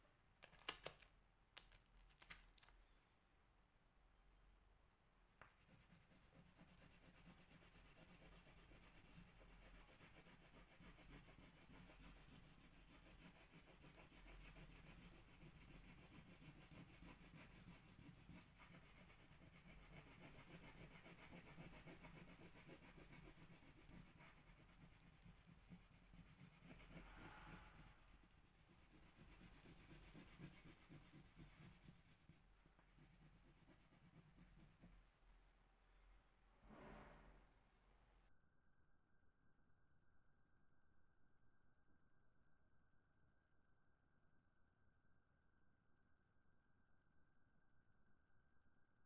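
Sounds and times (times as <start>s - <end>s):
pencil scratching on paper: 5.4s - 35.1s.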